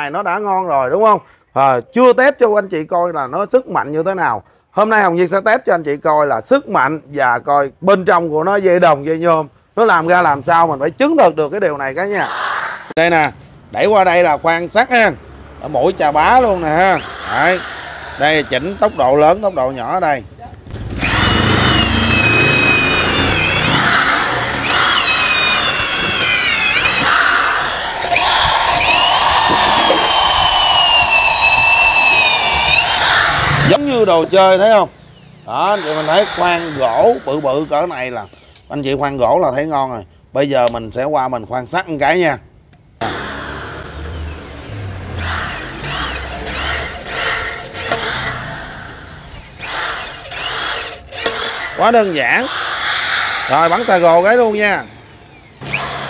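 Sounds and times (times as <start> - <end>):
drill motor whine boring wood: 16.2 - 20.0, 20.8 - 38.9, 43.0 - 56.0.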